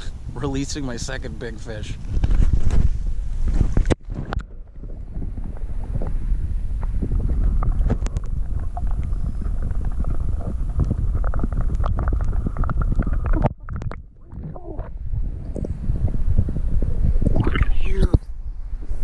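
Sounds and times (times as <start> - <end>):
muffled underwater rumble: 0.0 - 19.0.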